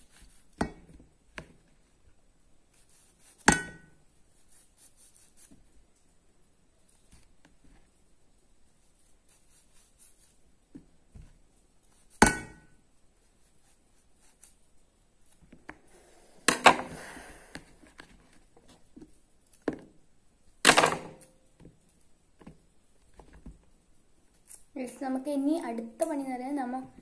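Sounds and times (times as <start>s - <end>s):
knife scraping mango: 2.7s - 3.5s, 8.8s - 10.4s.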